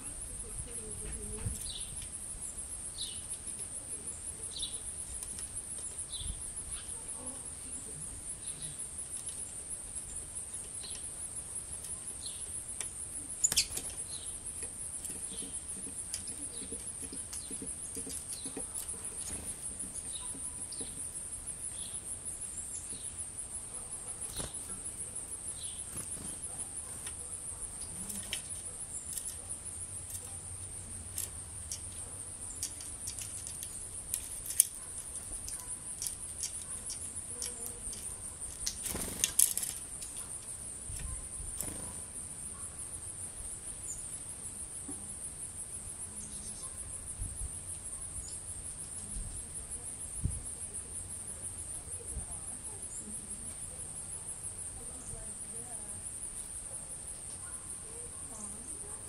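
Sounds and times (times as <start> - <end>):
small birds chirping: 0.0 - 42.8, 46.1 - 47.0
insects trilling: 0.0 - 59.0
wings fluttering: 13.4 - 21.1, 24.0 - 25.1, 25.7 - 29.5, 31.2 - 42.2.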